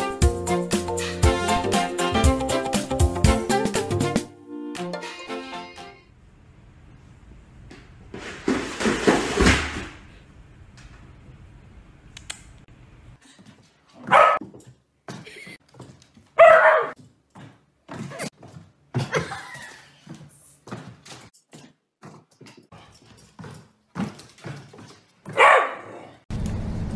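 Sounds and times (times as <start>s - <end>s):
dog barking: 14.0s - 14.4s, 16.4s - 17.0s, 25.3s - 26.2s.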